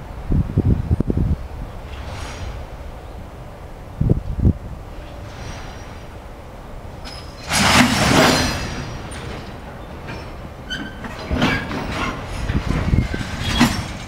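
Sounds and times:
hissing and squealing: 1.9s - 3.2s, 4.9s - 6.4s.

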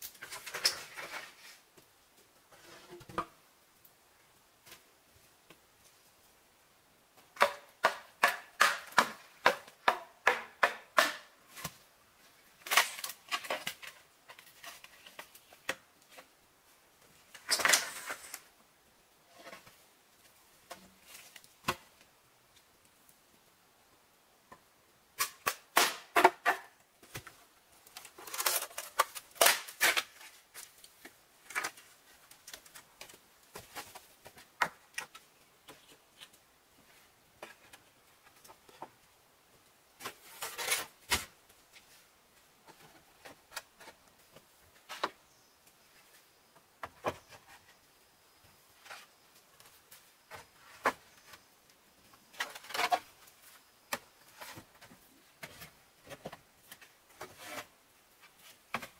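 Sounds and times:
bamboo poles clattering: 0.0s - 1.6s, 7.2s - 11.9s, 12.5s - 16.3s, 17.3s - 18.5s, 25.2s - 36.4s, 52.2s - 58.9s.

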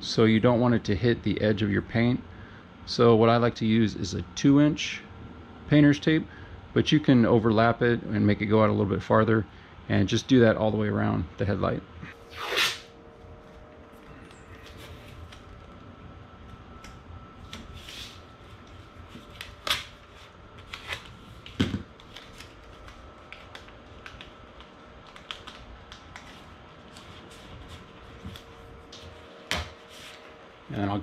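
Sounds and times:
tape crackling and tearing: 12.2s - 12.9s, 17.5s - 28.4s.

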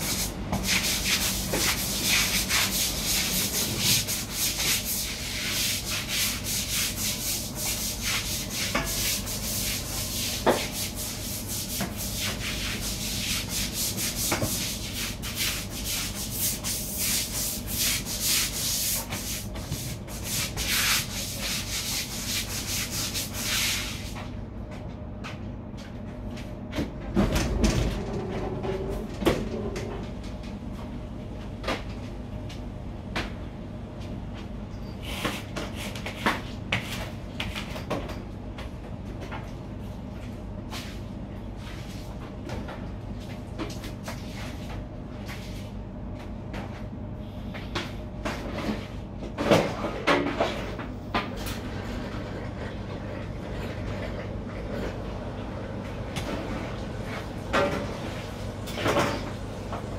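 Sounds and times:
scratchy scrubbing on a surface: 0.0s - 24.2s
kitchen equipment hum: 0.0s - 59.9s.

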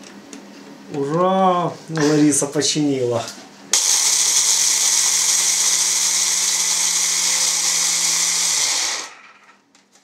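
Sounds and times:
grinder motor running: 3.8s - 9.5s
motor winding down: 3.8s - 9.6s.

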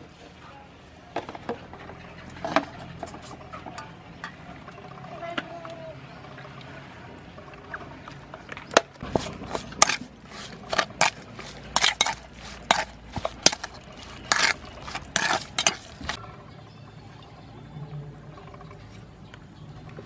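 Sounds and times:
spoon scraping metal bowl: 9.0s - 16.2s.

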